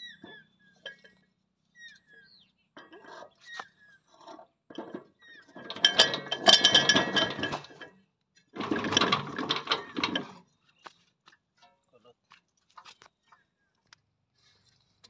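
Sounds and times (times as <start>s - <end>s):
metal tiller tines clinking: 0.2s - 1.2s, 2.8s - 3.6s, 4.2s - 10.5s.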